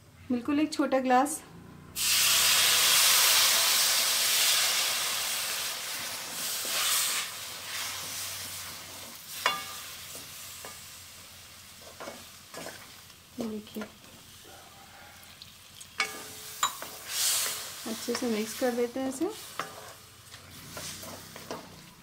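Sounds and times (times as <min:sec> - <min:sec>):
water sizzling in hot pan: 0:02.0 - 0:14.5, 0:15.2 - 0:22.0
spatula scraping pan: 0:11.8 - 0:13.0, 0:16.0 - 0:22.0.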